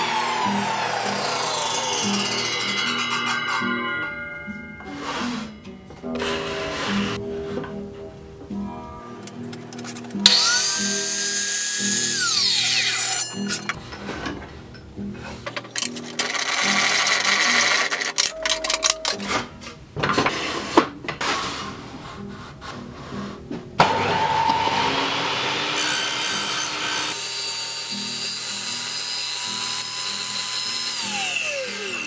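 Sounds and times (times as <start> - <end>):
table saw whine: 0.0 - 7.2, 10.2 - 13.8, 23.8 - 32.0
background music with steady beat: 0.3 - 11.4.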